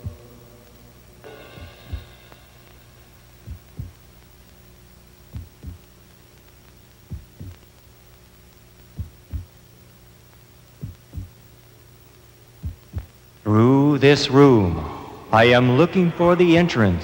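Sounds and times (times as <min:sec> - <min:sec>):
heartbeat thumps: 0:00.0 - 0:00.3, 0:01.5 - 0:02.2, 0:03.4 - 0:04.1, 0:05.2 - 0:06.0, 0:07.0 - 0:07.7, 0:08.9 - 0:09.6, 0:10.8 - 0:11.4, 0:12.6 - 0:13.2
low electronic hum: 0:00.0 - 0:17.0.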